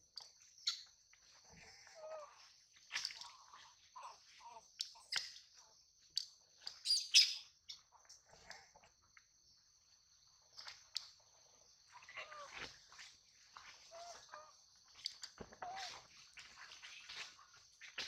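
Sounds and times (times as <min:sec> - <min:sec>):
animal chirps and squeaks: 0:01.6 - 0:05.7, 0:06.6 - 0:07.9.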